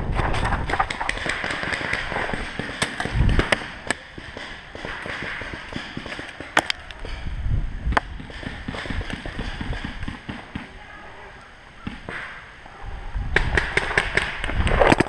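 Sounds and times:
paintball markers firing pops: 0:00.6 - 0:07.2, 0:07.9 - 0:10.7.

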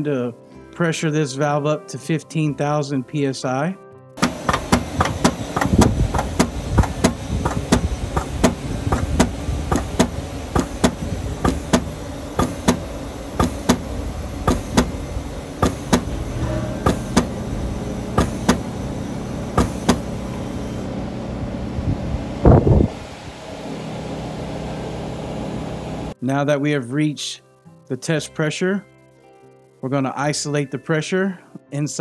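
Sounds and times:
test pump clicking: 0:04.2 - 0:15.0, 0:15.6 - 0:16.2, 0:18.2 - 0:18.7, 0:19.6 - 0:20.1
steady low rumble: 0:04.3 - 0:26.2.

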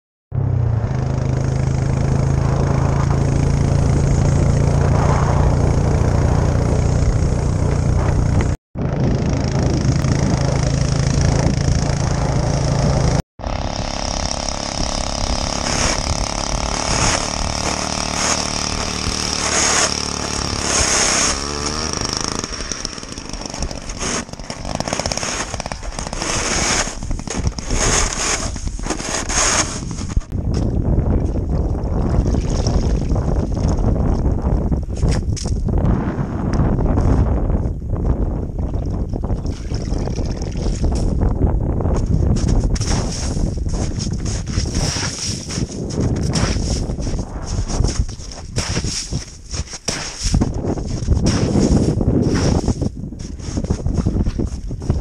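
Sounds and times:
wind on microphone: 0:00.4 - 0:24.8, 0:25.4 - 0:55.0
small petrol engine drilling ice: 0:00.9 - 0:30.7, 0:42.0 - 0:55.0.

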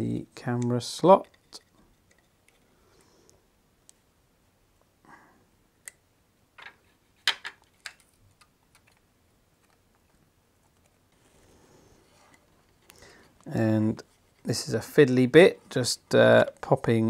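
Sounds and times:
faint handling noise: 0:00.4 - 0:04.1, 0:06.6 - 0:17.0
small plastic clicks: 0:07.5 - 0:10.0.

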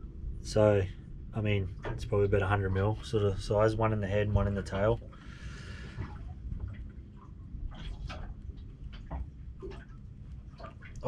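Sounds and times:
water lapping against hull: 0:00.0 - 0:11.0.

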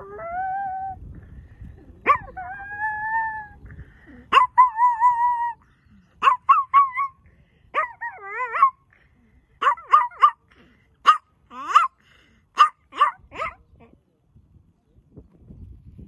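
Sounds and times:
small dog howling and yipping: 0:00.0 - 0:01.0, 0:02.0 - 0:03.6, 0:04.2 - 0:05.6, 0:06.2 - 0:07.2, 0:07.8 - 0:08.8.

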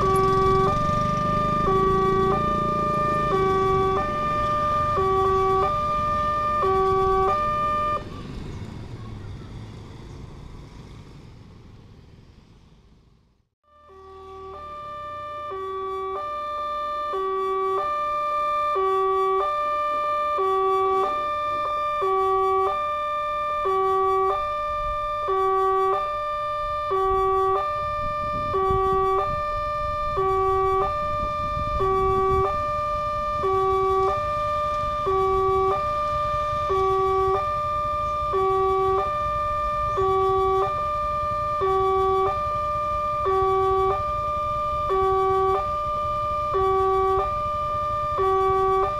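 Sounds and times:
low train rumble: 0:00.0 - 0:48.9.

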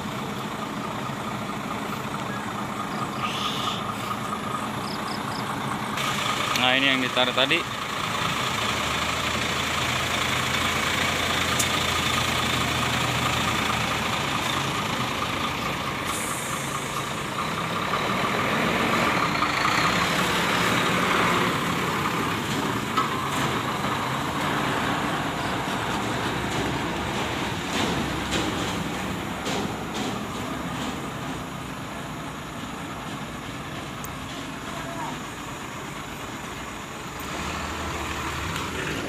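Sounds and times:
diesel truck engines running: 0:00.0 - 0:39.0.

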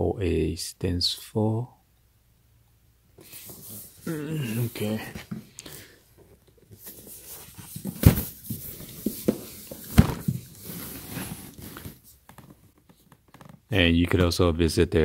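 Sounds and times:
cardboard box rustling and scraping: 0:06.8 - 0:12.1.

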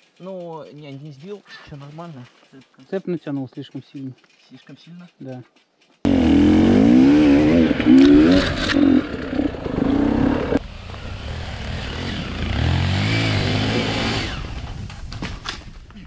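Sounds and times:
dirt bike engine revving: 0:06.1 - 0:14.8.

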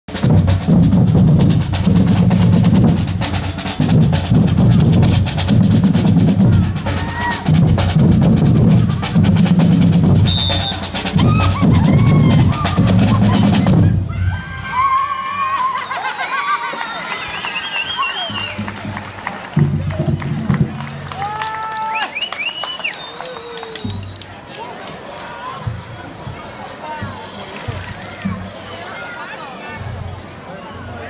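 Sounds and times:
snare drums: 0:00.1 - 0:14.0, 0:17.9 - 0:21.4
crowd voices: 0:00.1 - 0:31.0
voices shouting: 0:06.4 - 0:07.5, 0:10.3 - 0:18.3.

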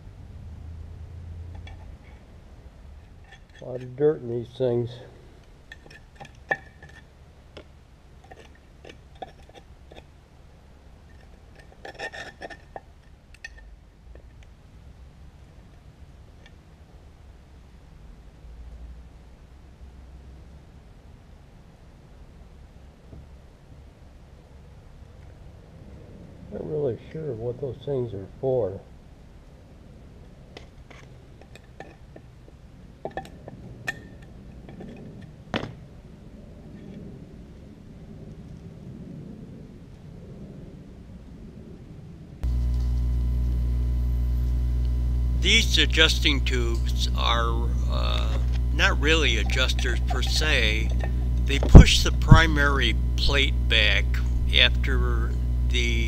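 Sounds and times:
light rubbing on metal: 0:11.1 - 0:12.9, 0:42.5 - 0:56.0
metal clinks: 0:48.1 - 0:53.4.

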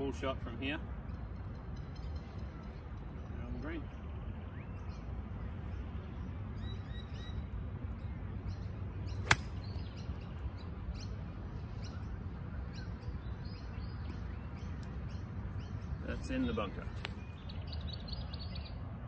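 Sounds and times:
golf club striking ball: 0:09.2 - 0:09.8.

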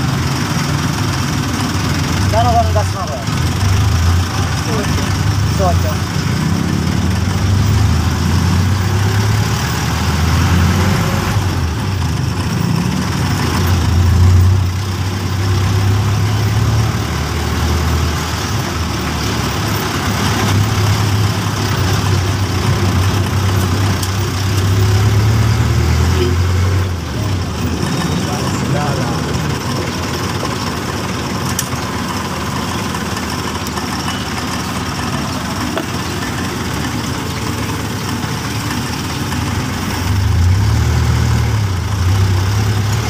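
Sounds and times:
diesel engine rumbling: 0:00.0 - 0:43.0.

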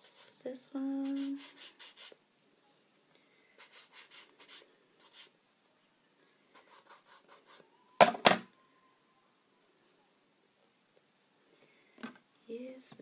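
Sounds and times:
card rubbing on ink pad: 0:01.0 - 0:02.2, 0:03.6 - 0:05.3.

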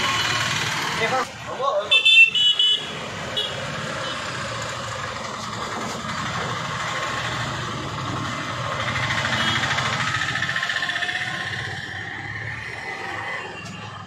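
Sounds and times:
street traffic: 0:00.0 - 0:14.0
engine running: 0:04.2 - 0:13.9.

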